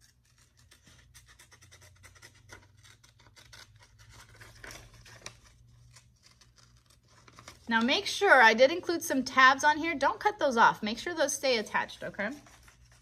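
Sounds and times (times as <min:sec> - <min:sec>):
scissors snipping paper: 0:00.0 - 0:07.8
paper rustling: 0:00.0 - 0:08.1, 0:12.0 - 0:13.0.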